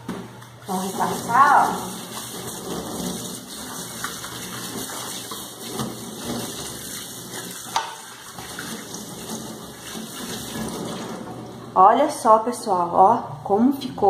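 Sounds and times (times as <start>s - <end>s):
tap water splashing on pot: 3.7s - 11.2s.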